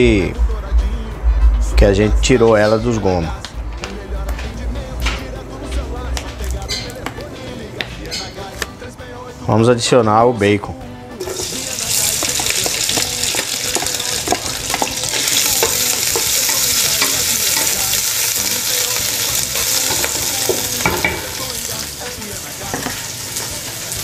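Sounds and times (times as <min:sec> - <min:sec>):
bacon sizzling in oil: 0:11.2 - 0:24.0.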